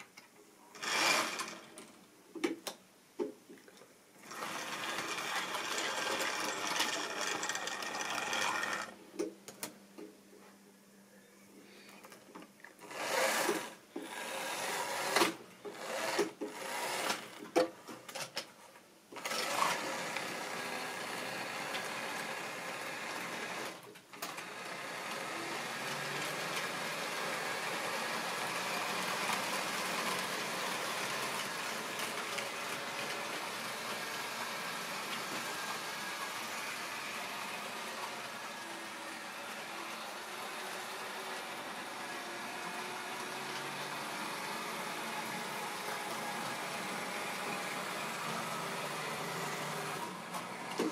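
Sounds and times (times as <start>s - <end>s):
model train motor hum: 0.7s - 1.8s, 4.2s - 9.0s, 12.8s - 17.3s, 19.2s - 50.9s
wheels on rails: 4.2s - 9.0s.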